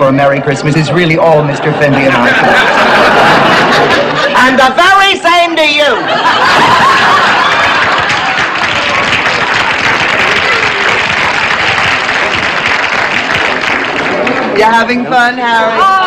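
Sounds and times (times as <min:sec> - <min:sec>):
audience applauding: 0:06.3 - 0:16.0.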